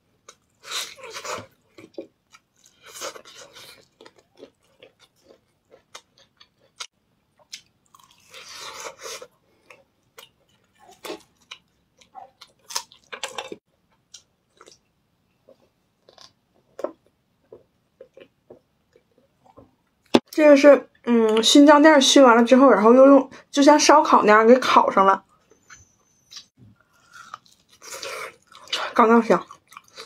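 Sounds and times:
person chewing meat: 0.2 - 14.8, 26.3 - 28.7, 29.5 - 30.0.

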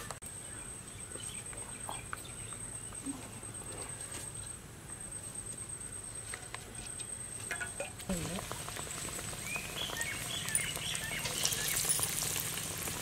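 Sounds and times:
cooking oil trickling into a pan: 7.6 - 13.0.

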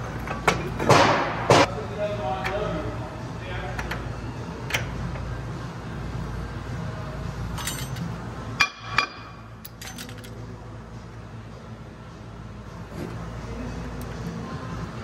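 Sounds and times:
metal tool clinks and knocks: 7.6 - 8.1, 9.0 - 10.4.

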